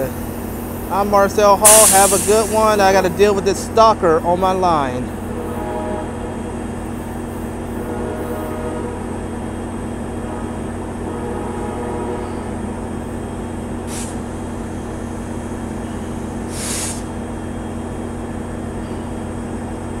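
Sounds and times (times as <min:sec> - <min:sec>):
diesel locomotive drone: 0:00.0 - 0:20.0
short air hisses: 0:01.6 - 0:02.8, 0:13.9 - 0:14.3, 0:16.5 - 0:17.1.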